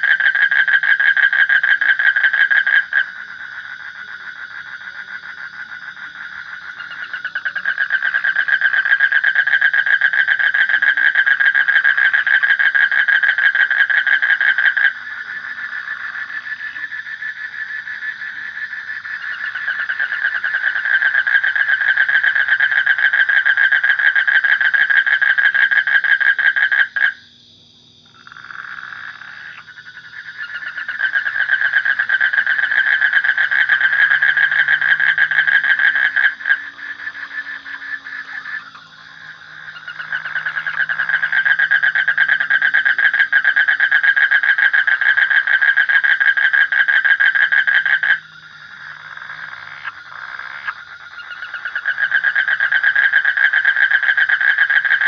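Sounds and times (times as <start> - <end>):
frog pulsing trills: 0.0 - 55.0.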